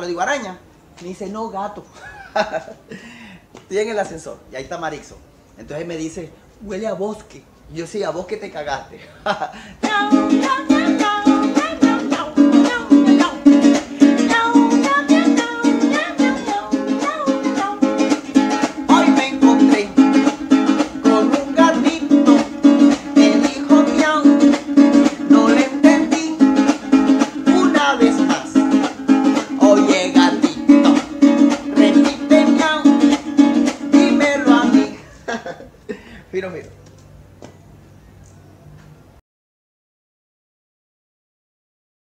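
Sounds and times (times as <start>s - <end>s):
man singing: 9.8s - 17.6s, 18.4s - 35.2s
acoustic guitar strumming: 9.8s - 35.1s.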